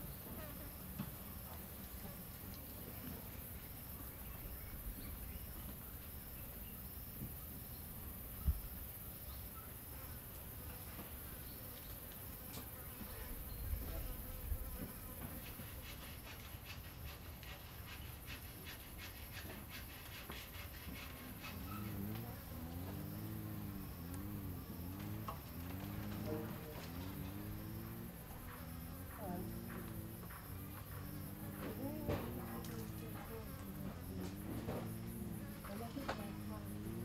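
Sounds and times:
insect chirping: 0.0 - 37.0
insects buzzing: 0.0 - 37.0
insect ticking calls: 15.5 - 37.0.

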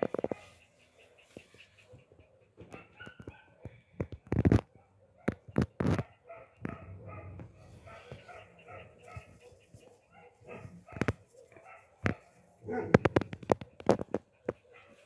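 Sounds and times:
sharp clicks and knocks: 10.9 - 14.6.

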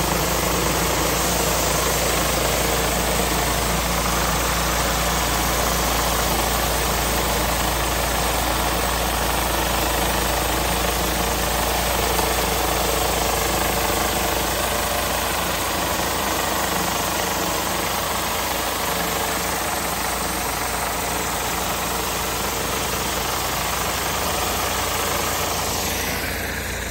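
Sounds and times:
engine running: 0.0 - 26.9
high-pressure water spray hissing: 0.0 - 26.9.

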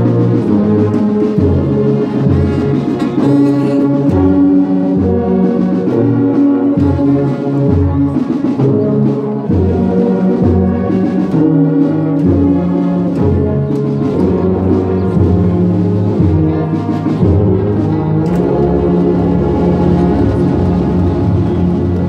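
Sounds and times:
brass band playing: 0.0 - 22.0.

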